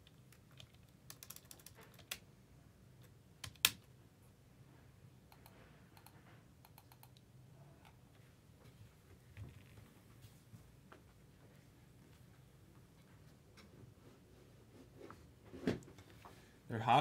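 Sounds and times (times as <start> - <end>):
computer keyboard typing: 0.0 - 2.2, 3.4 - 3.8, 5.3 - 7.2.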